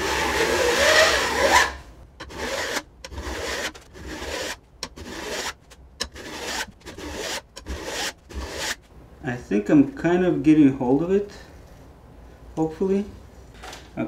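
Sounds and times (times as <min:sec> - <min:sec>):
file scraping saw teeth: 0:00.0 - 0:08.8.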